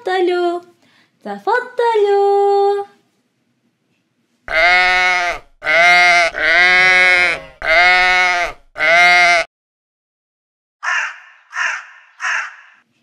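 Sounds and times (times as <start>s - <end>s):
sheep bleating: 4.5s - 9.5s.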